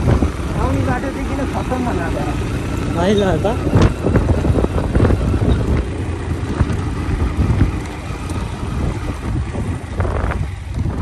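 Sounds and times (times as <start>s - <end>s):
wind buffeting microphone: 0.0s - 1.1s, 3.3s - 11.0s
motorcycle engine rumble: 0.0s - 11.0s.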